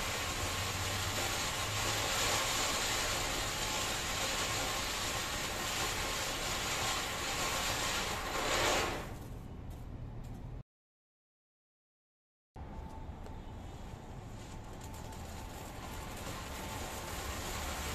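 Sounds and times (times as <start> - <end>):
firework fountain hissing: 0.0 - 9.2, 13.7 - 17.9.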